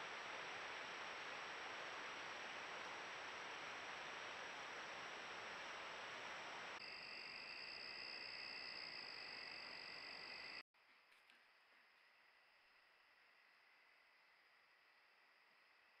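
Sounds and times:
steady hiss: 0:00.0 - 0:10.6
high-pitched insect chorus: 0:06.8 - 0:10.6.

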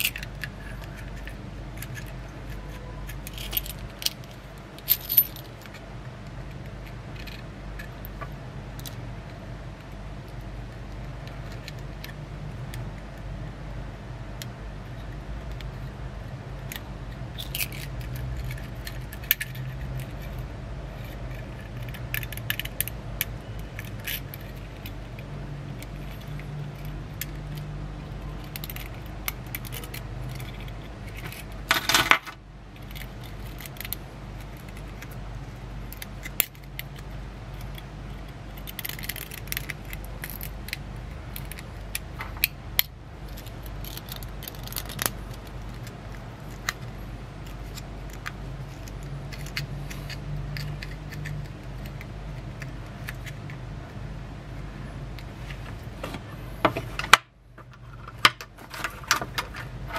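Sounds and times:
low steady hum: 0:00.0 - 0:59.9.

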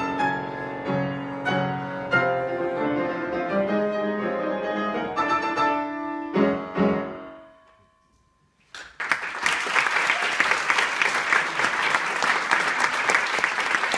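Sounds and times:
grand piano chords: 0:00.0 - 0:08.6
audience applause: 0:08.7 - 0:13.9.

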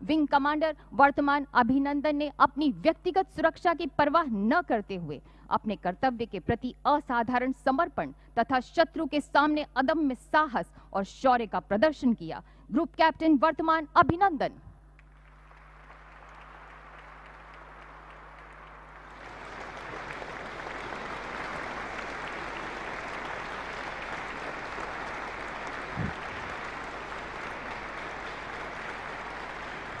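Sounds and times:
audience applauding: 0:15.1 - 0:30.0.

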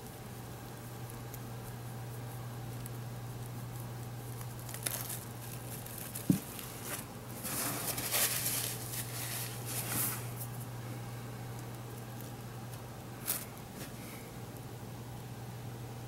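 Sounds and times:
steady low hum: 0:00.0 - 0:16.0
rustling handling noises: 0:03.8 - 0:10.7.

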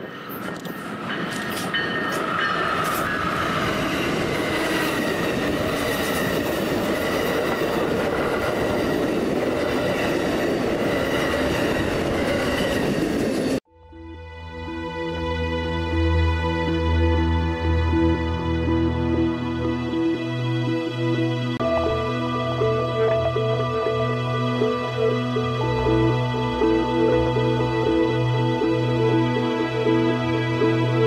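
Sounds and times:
train rumble: 0:00.0 - 0:13.6
music: 0:13.7 - 0:31.0.

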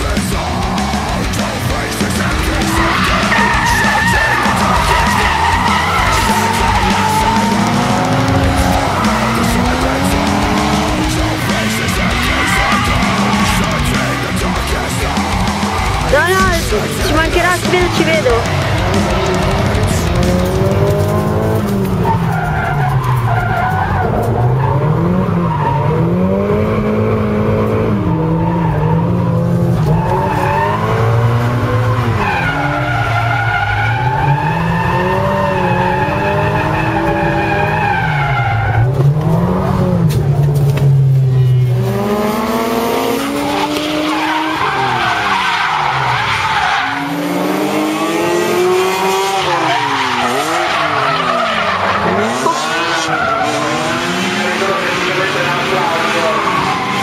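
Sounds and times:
car engines revving: 0:00.0 - 0:57.0
tyres screeching: 0:00.0 - 0:57.0.

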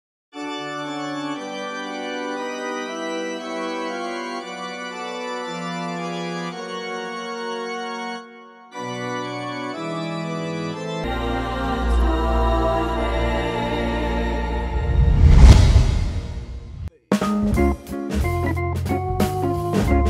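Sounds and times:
organ playing slow chords: 0:00.4 - 0:14.8.

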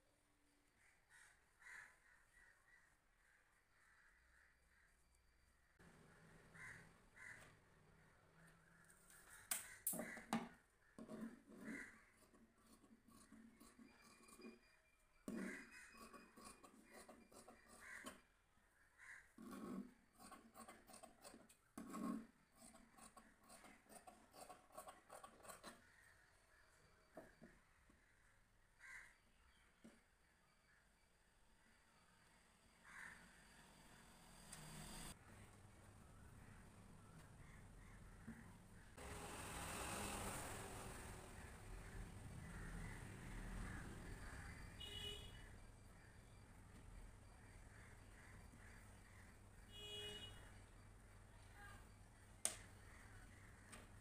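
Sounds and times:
crows cawing: 0:00.8 - 0:04.9, 0:06.5 - 0:10.9, 0:11.6 - 0:12.2, 0:15.3 - 0:16.2, 0:17.6 - 0:19.5, 0:28.2 - 0:29.3, 0:32.8 - 0:33.3, 0:41.8 - 0:45.1.

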